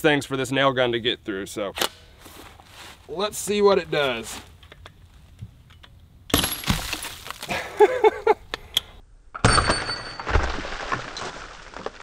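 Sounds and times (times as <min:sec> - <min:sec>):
concrete breaking and clattering: 0:06.4 - 0:07.6, 0:09.4 - 0:12.0.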